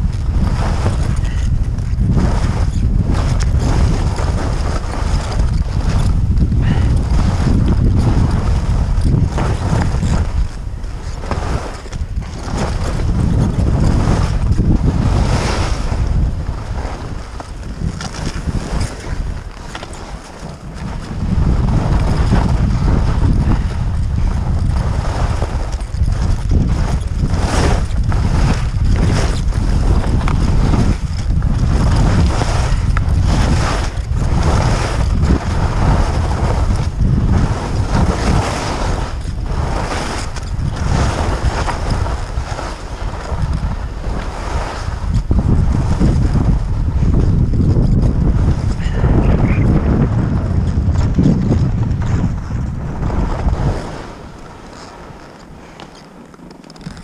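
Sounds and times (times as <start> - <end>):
wind buffeting microphone: 0.0 - 57.0
skis hissing through snow: 37.3 - 40.2, 40.8 - 45.0.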